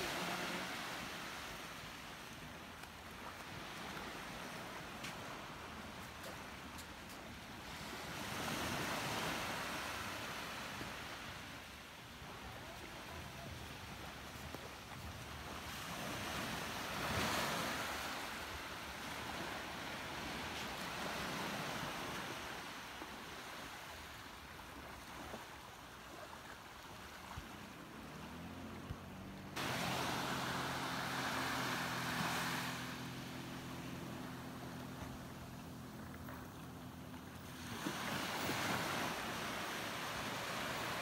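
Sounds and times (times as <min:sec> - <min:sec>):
jet ski engine: 0:00.0 - 0:02.6, 0:27.0 - 0:41.0
waves lapping: 0:00.0 - 0:41.0.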